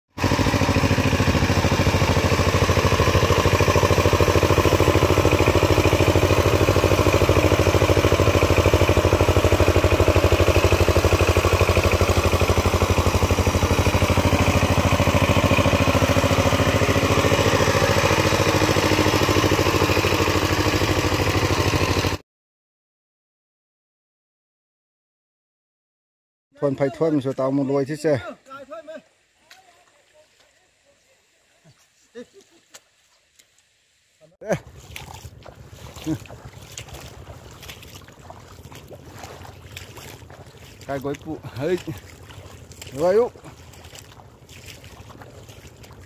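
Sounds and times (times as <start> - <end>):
diesel engine running: 0.2 - 22.2, 34.6 - 46.0.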